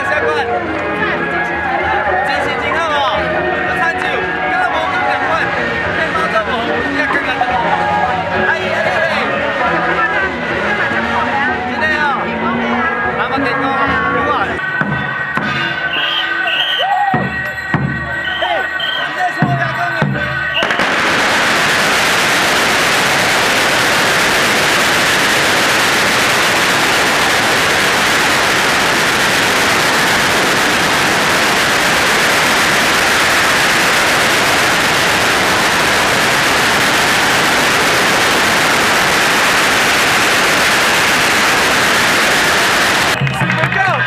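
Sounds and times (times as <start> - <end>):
firecrackers crackling: 20.3 - 44.0.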